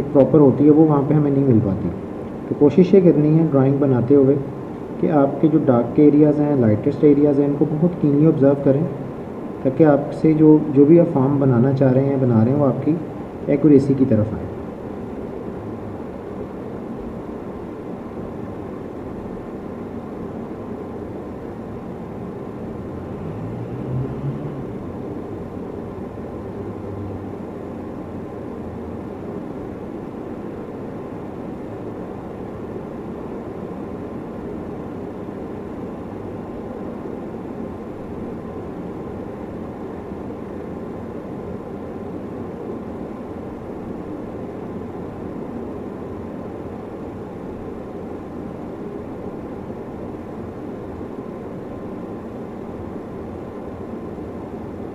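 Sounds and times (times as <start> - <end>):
loud low hum: 0.0 - 41.8
low rumbling background noise: 0.0 - 54.9.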